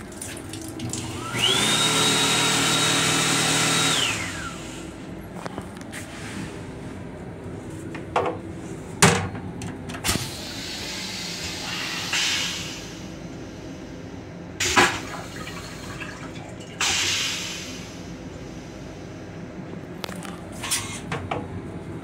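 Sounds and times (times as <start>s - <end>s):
steady low hum: 4.2s - 16.8s, 17.5s - 22.0s.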